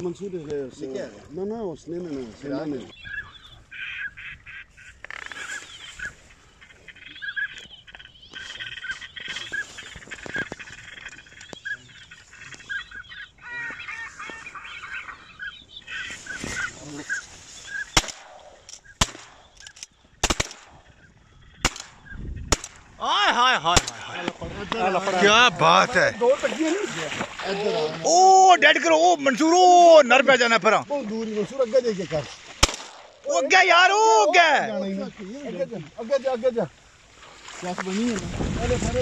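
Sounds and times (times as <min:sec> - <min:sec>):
ducks honking and quacking: 0:02.0 - 0:37.5
shotgun shots: 0:17.9 - 0:19.5, 0:20.2 - 0:20.8, 0:21.6 - 0:22.9, 0:23.7 - 0:24.4, 0:32.6 - 0:33.2.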